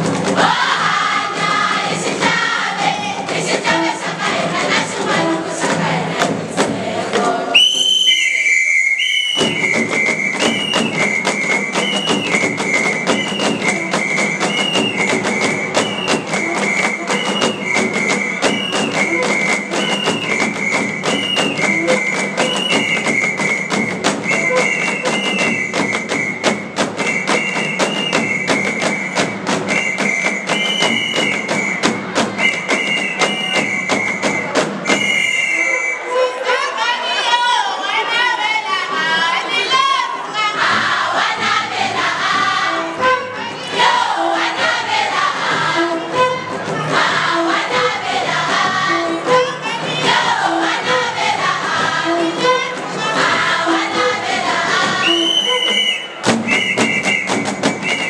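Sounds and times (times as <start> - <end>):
drums beating: 0.0 - 8.1, 9.2 - 35.7, 40.5 - 58.0
shrill whistle: 7.5 - 36.6, 53.3 - 58.0.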